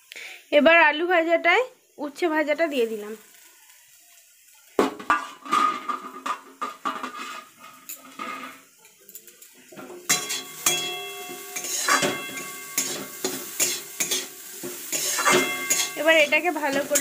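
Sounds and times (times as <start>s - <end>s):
metal spatula scraping a pan: 5.0s - 17.0s.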